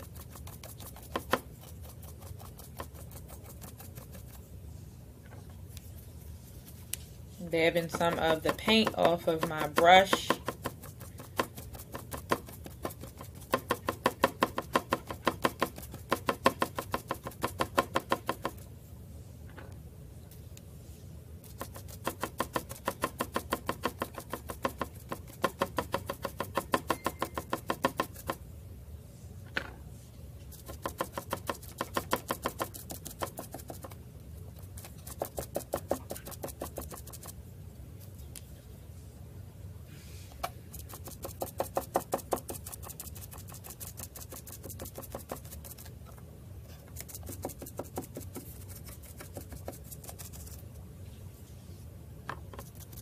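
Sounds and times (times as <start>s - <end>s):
stencil brush tapping on wood: 7.8s - 10.7s.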